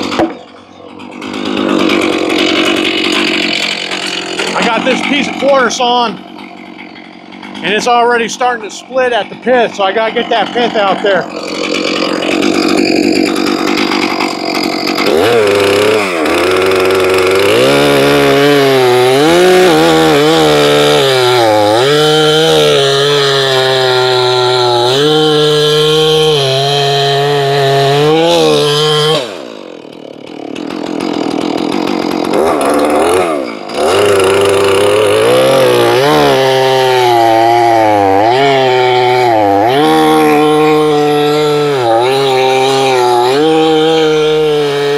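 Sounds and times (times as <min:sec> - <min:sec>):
chainsaw cutting wood: 0:00.0 - 0:44.9.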